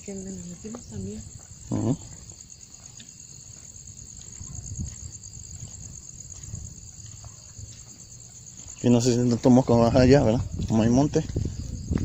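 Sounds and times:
crickets chirping: 0.0 - 12.0
faint low thuds: 4.0 - 12.0.

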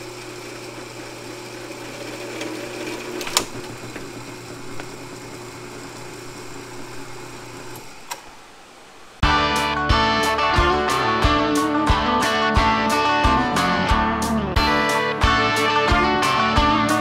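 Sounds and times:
drill press motor hum: 0.0 - 9.2
drill press quill clack: 1.4 - 5.2
switch click: 7.7 - 8.3.

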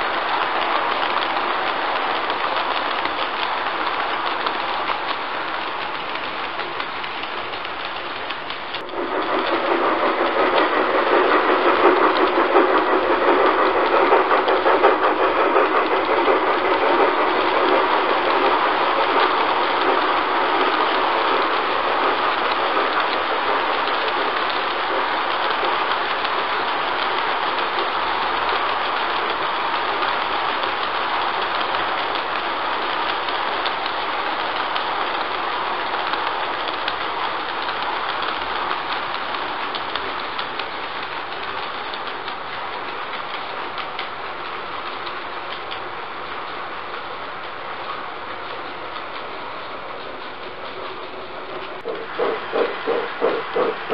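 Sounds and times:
model train clattering rumble: 0.0 - 53.9.

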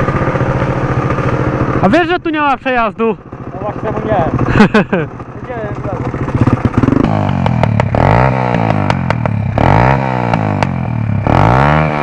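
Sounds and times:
small motorbike engine revving: 3.5 - 12.0.

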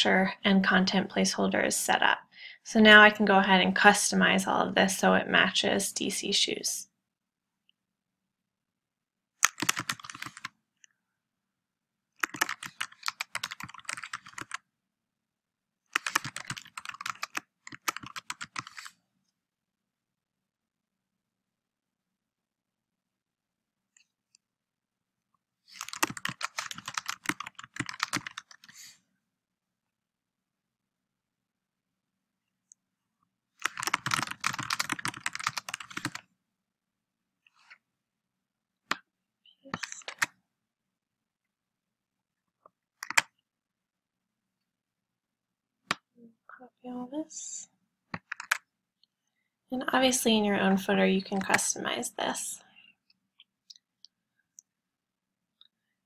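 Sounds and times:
typing on keyboard: 9.4 - 10.5, 12.2 - 14.6, 15.9 - 18.9, 25.7 - 28.7, 33.6 - 36.2, 39.7 - 40.3, 43.0 - 43.3, 48.2 - 48.7.

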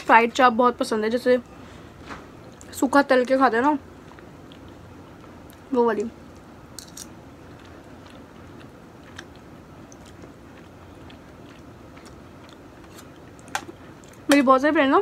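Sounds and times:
quiet chewing of food: 7.4 - 14.2.

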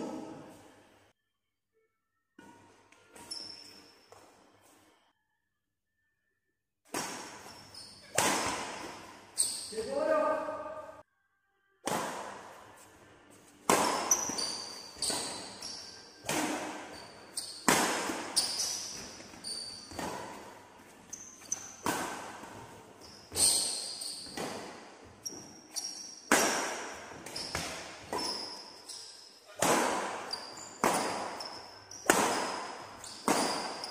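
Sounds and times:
shoe squeaks on court: 3.1 - 5.0, 7.3 - 9.9, 13.7 - 20.5, 21.1 - 21.8, 23.0 - 33.9
racket striking shuttlecock: 6.9 - 9.2, 11.8 - 12.6, 13.6 - 20.6, 21.4 - 22.7, 23.3 - 28.6, 29.4 - 33.9.

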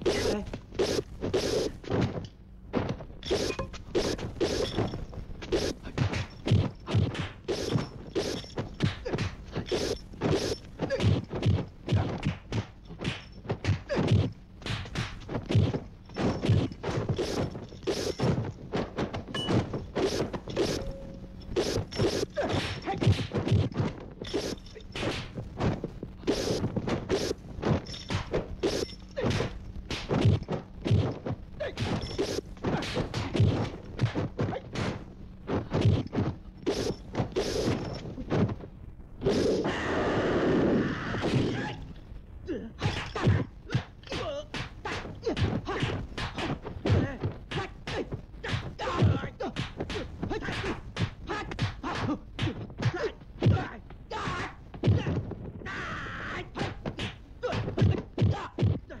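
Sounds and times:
punch and kick thwacks: 5.5 - 18.4, 21.6 - 25.3.

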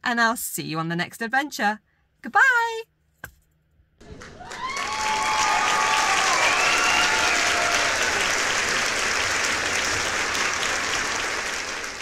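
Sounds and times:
applause: 4.0 - 12.0.

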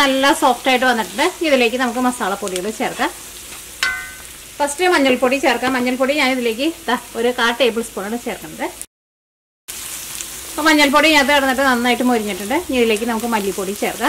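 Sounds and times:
onions sizzling in oil: 0.0 - 8.9, 9.7 - 14.0.

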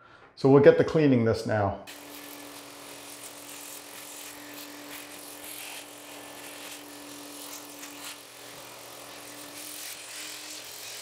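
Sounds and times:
vacuum cleaner running: 1.9 - 9.4.

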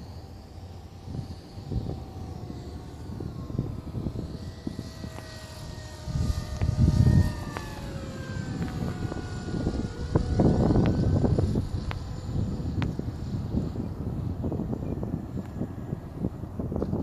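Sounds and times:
model plane motor whining: 0.0 - 17.0
wind on microphone: 0.7 - 17.0.

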